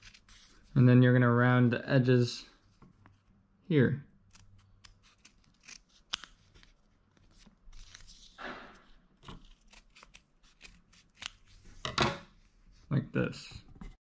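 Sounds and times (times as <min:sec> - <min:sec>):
scissors snipping tape: 0:04.3 - 0:06.4, 0:09.3 - 0:11.4.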